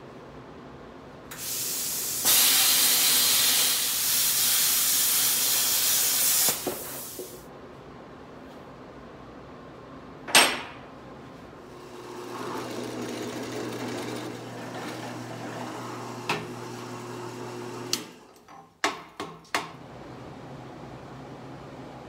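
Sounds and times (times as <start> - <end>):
drill press motor hum: 11.7 - 18.3.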